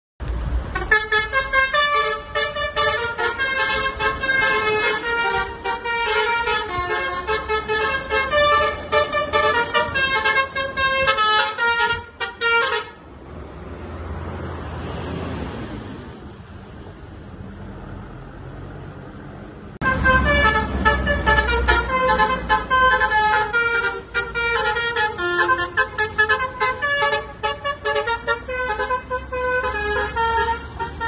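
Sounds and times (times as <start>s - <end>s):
bus engine running: 0.2s - 31.0s
bus horn playing a melody: 0.6s - 13.0s, 19.8s - 31.0s.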